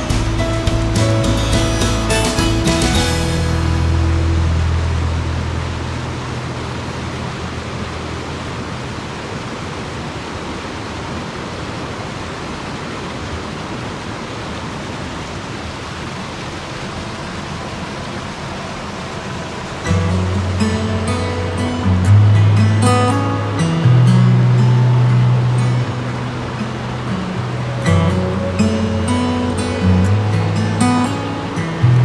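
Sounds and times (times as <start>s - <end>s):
background music: 0.0s - 6.8s, 19.9s - 32.0s
creek water rushing: 0.0s - 32.0s.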